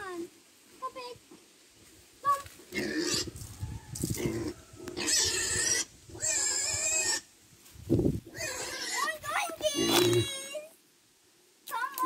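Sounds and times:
piglets squealing: 0:02.8 - 0:03.3, 0:04.2 - 0:07.3, 0:08.3 - 0:09.2.

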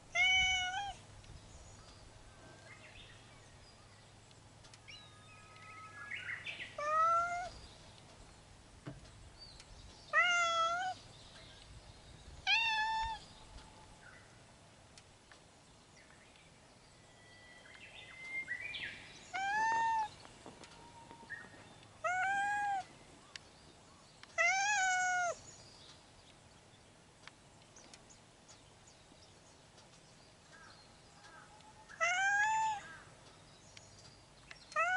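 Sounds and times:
cat meowing: 0:00.1 - 0:01.0, 0:06.8 - 0:07.5, 0:10.1 - 0:11.0, 0:12.4 - 0:13.2, 0:19.3 - 0:20.1, 0:22.0 - 0:22.9, 0:24.4 - 0:25.4, 0:32.0 - 0:32.8.

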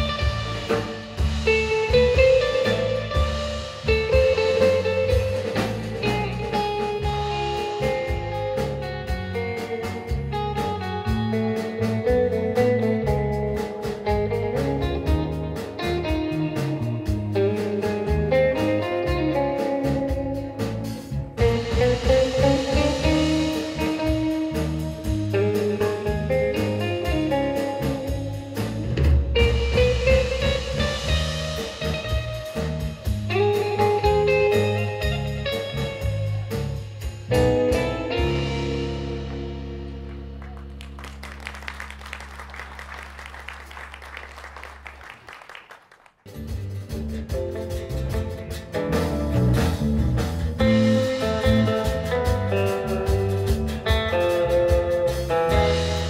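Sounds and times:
acoustic rhythm guitar: 0:00.0 - 0:41.9, 0:46.2 - 0:56.0
lead electric guitar melody: 0:00.0 - 0:43.0, 0:47.2 - 0:56.0
electric bass: 0:00.0 - 0:45.0, 0:46.3 - 0:56.0
drum kit: 0:00.0 - 0:56.0
audience clapping: 0:40.0 - 0:46.4.

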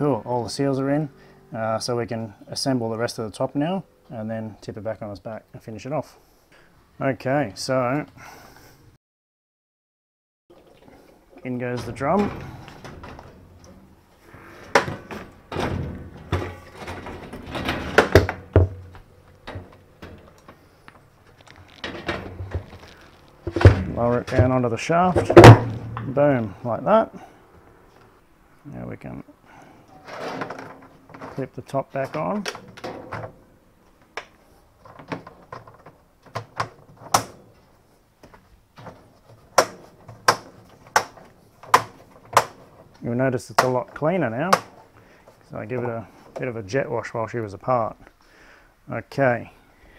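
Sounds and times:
scraping and rubbing: 0:10.8 - 0:24.6.

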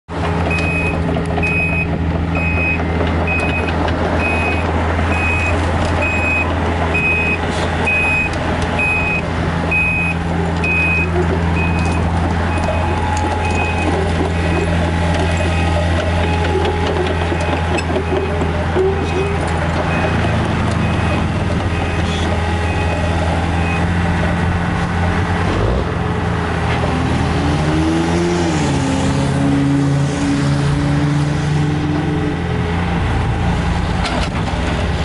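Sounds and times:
excavator diesel engine: 0:00.1 - 0:35.0
travel alarm beeping: 0:00.5 - 0:14.7.

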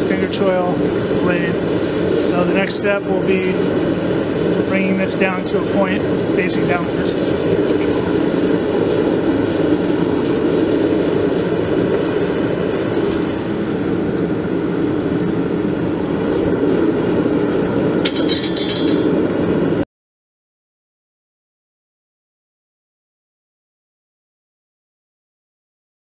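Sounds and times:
gas burner flame rushing: 0:00.0 - 0:19.8
metal tools clattering on anvil: 0:18.1 - 0:19.1.

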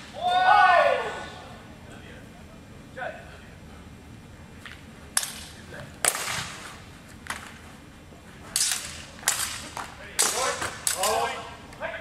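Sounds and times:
steel swords clashing: 0:08.6 - 0:11.4.

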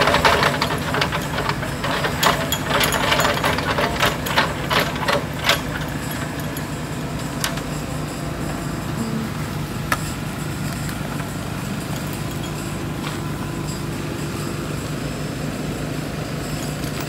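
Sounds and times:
sharp clicks and clanks: 0:00.0 - 0:07.7
diesel engine running: 0:00.0 - 0:17.0.

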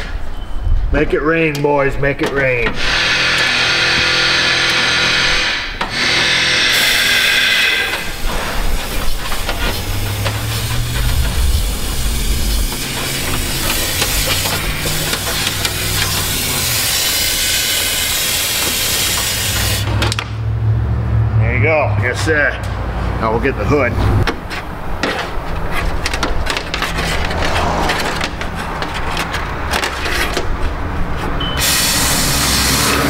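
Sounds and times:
spray gun hissing: 0:06.6 - 0:19.9, 0:31.6 - 0:33.0
low hum: 0:07.8 - 0:17.4, 0:20.2 - 0:23.2.

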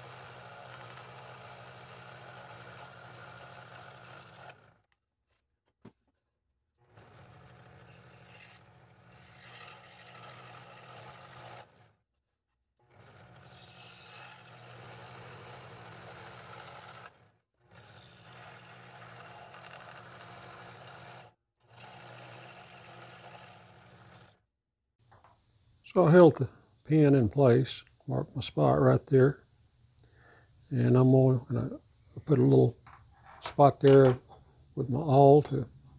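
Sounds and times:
scroll saw motor humming: 0:00.0 - 0:05.0, 0:06.8 - 0:12.0, 0:12.8 - 0:24.4
saw blade rasping wood: 0:06.9 - 0:12.0, 0:13.0 - 0:24.4.

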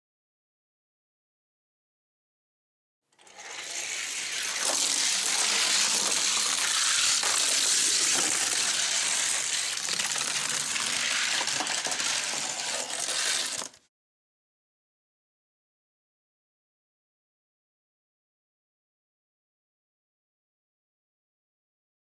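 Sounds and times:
toy car wheels rattling on track: 0:03.1 - 0:13.9.

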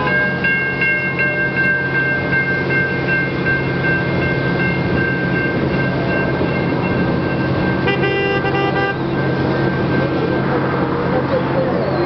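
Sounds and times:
train rumbling with high whine: 0:00.0 - 0:12.0
train horn blowing: 0:07.8 - 0:09.2.

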